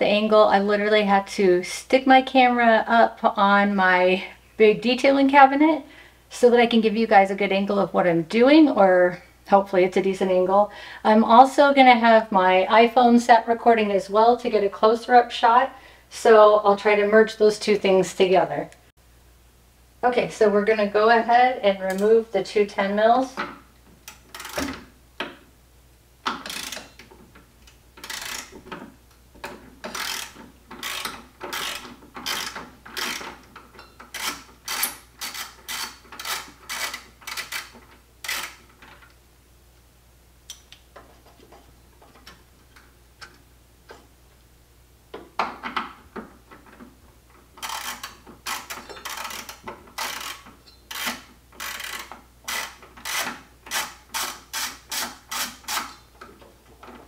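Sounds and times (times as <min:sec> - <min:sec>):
ratchet wrench clicking: 0:24.1 - 0:24.7, 0:26.3 - 0:27.0, 0:28.0 - 0:28.6, 0:29.8 - 0:33.4, 0:34.1 - 0:38.6, 0:47.6 - 0:56.0.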